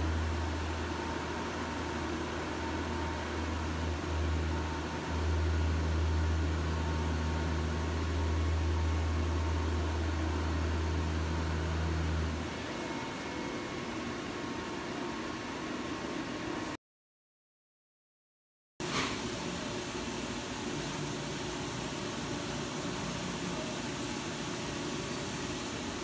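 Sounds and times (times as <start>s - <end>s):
machining center humming: 0.0s - 16.7s.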